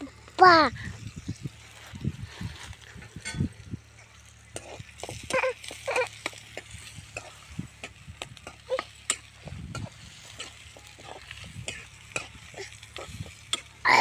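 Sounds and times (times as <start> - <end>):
onions sizzling in oil: 1.0 - 14.0
spoon stirring and scraping pan: 3.0 - 13.8.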